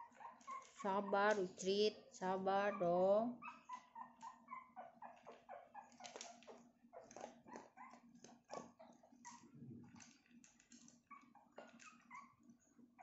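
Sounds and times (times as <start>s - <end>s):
dog chewing dry kibble: 0.0s - 1.4s, 5.2s - 12.4s
puppies squeaking and whimpering: 0.0s - 1.5s, 2.6s - 13.0s.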